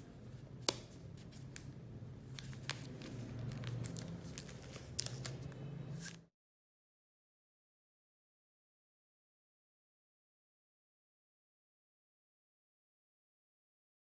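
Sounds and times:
plastic film crinkling: 0:02.4 - 0:06.2.

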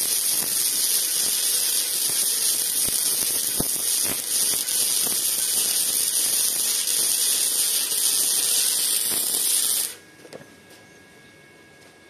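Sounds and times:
welding arc crackling hiss: 0:00.0 - 0:10.0.

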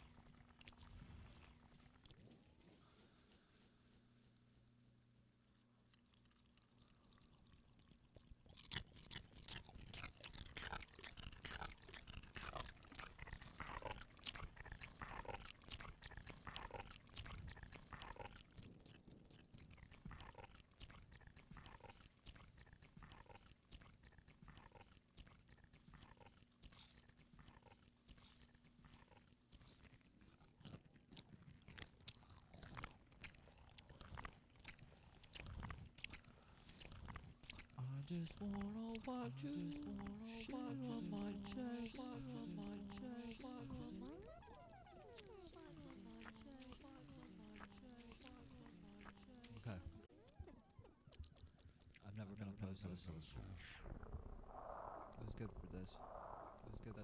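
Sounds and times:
crunching and clicking: 0:05.9 - 0:52.6.

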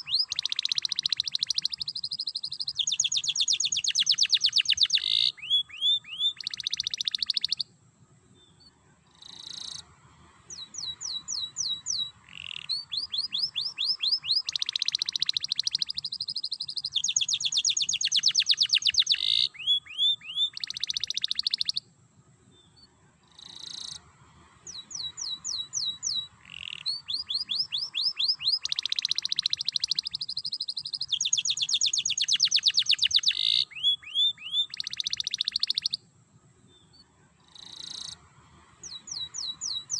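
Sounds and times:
canary singing rapid trills: 0:00.0 - 0:07.7, 0:10.5 - 0:21.8, 0:24.7 - 0:36.0, 0:38.8 - 0:39.9.

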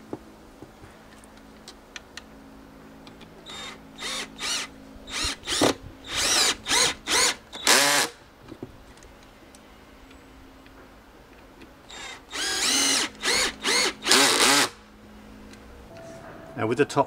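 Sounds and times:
cordless drill driving screws into wood: 0:03.5 - 0:08.2, 0:11.9 - 0:14.8.

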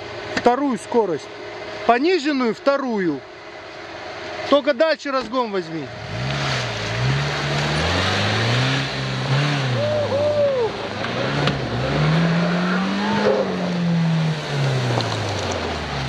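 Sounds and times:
car engine revving under load: 0:05.8 - 0:16.0
high whooping tones: 0:09.6 - 0:15.0.

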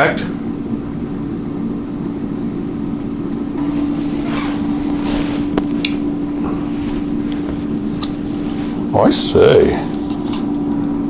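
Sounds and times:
air fryer fan hum: 0:00.0 - 0:11.0
handling rustles: 0:03.6 - 0:09.0.

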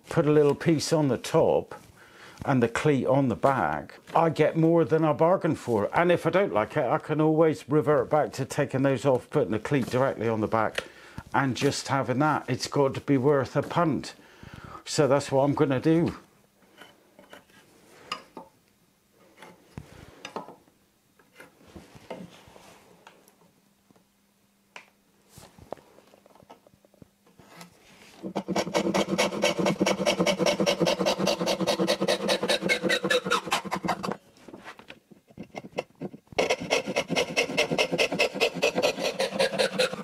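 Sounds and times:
handsaw cutting wood: 0:28.2 - 0:34.2, 0:36.4 - 0:40.0.

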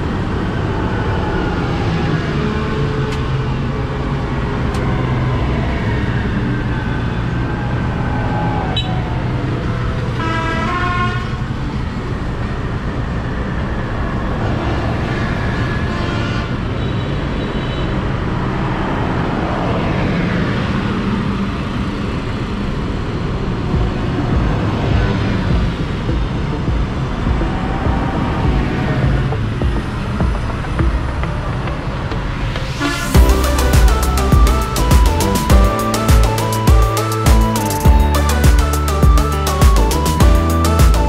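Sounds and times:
diesel tractor engines: 0:00.0 - 0:41.0
vehicles driving past: 0:00.0 - 0:41.0
horn tooting: 0:10.2 - 0:11.5.

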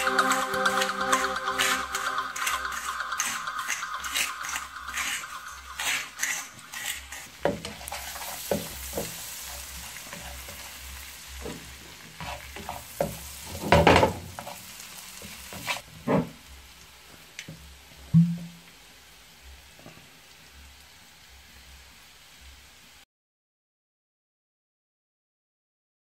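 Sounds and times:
spatula scraping a pan: 0:00.0 - 0:16.3
onions sizzling in oil: 0:00.0 - 0:23.0.

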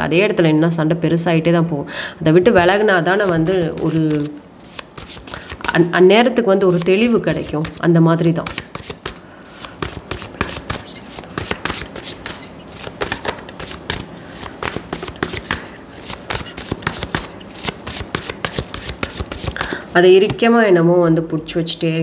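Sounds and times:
cards being shuffled: 0:03.2 - 0:05.8, 0:06.6 - 0:20.5.

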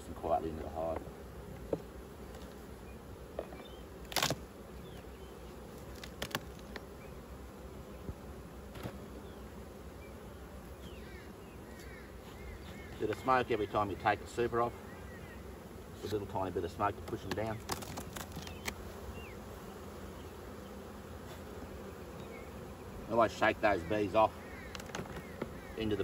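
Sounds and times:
honeybees humming: 0:00.0 - 0:26.0
knocks on wooden hive boxes: 0:00.6 - 0:02.5, 0:16.9 - 0:18.8, 0:24.6 - 0:25.8.

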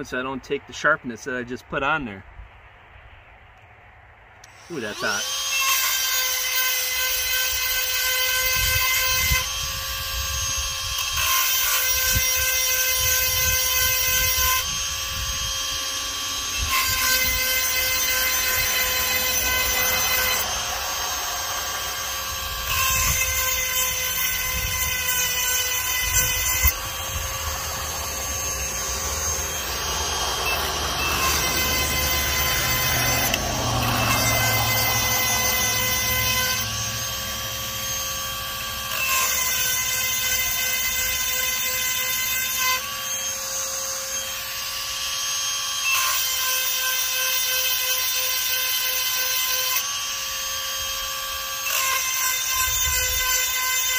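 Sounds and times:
rotary tool grinding chain: 0:04.4 - 0:53.9.

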